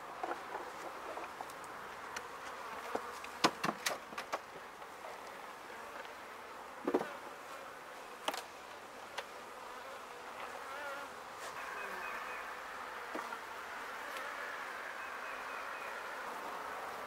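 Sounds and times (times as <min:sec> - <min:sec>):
bees buzzing: 0:05.4 - 0:17.0.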